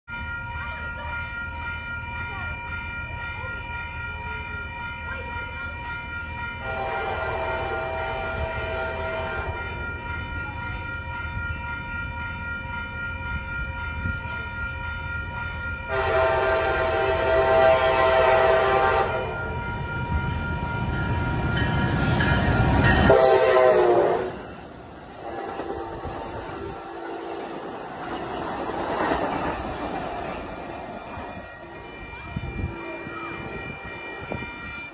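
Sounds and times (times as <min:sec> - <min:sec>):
train rumble: 0:00.1 - 0:34.9
train horn blasts: 0:06.6 - 0:09.8, 0:15.9 - 0:19.5, 0:23.0 - 0:24.6, 0:25.2 - 0:27.3.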